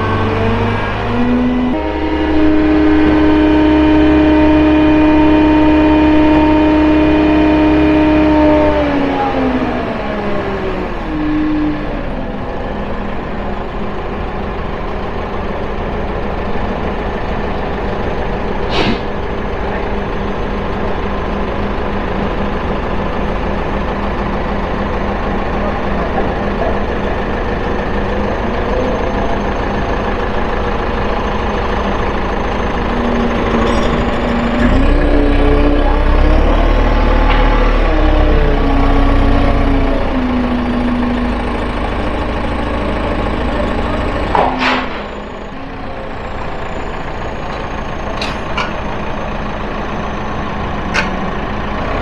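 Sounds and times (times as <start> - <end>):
large engine idling and revving: 0.0 - 52.0
short sharp click: 18.7 - 19.1.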